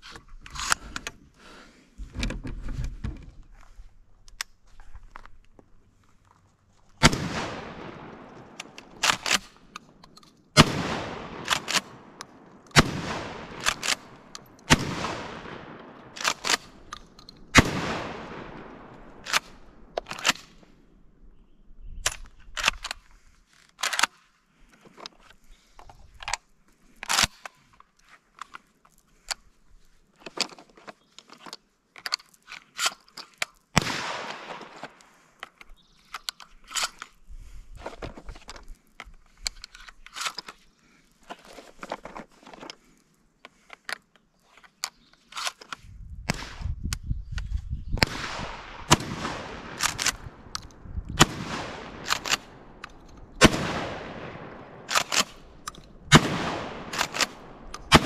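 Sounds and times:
gun handling clicks: 0.4 - 1.2, 6.9 - 20.8, 22.0 - 29.5, 30.2 - 58.0
shotgun shots echoing: 7.0 - 9.6, 10.6 - 16.8, 17.5 - 20.5, 33.8 - 34.8, 48.0 - 50.5, 51.2 - 58.0
shotgun pump clacking: 8.5 - 10.4, 13.5 - 14.8, 49.7 - 50.8, 51.9 - 53.3, 54.2 - 58.0.

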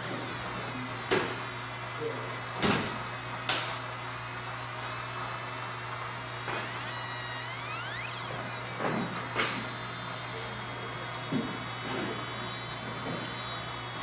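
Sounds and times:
laser machine humming: 0.0 - 14.0
high-pitched gliding tones: 6.6 - 8.4.

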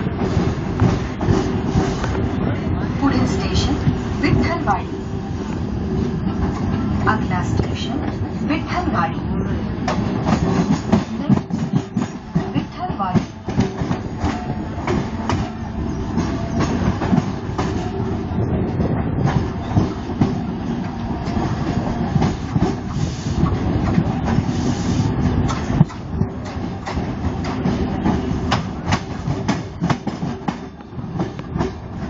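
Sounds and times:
electric train rumbling: 0.0 - 32.0.

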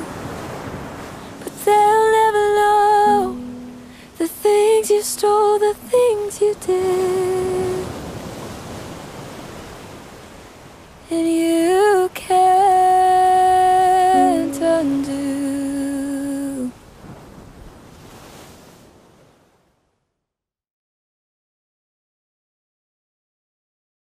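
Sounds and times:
person humming long notes: 13.6 - 16.7.

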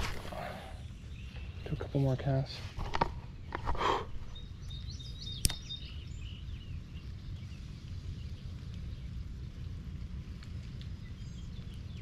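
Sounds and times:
low outdoor rumble: 0.0 - 12.0
bird chirps: 0.3 - 2.4, 3.8 - 9.2, 11.0 - 12.0
sharp click: 5.4 - 5.6.

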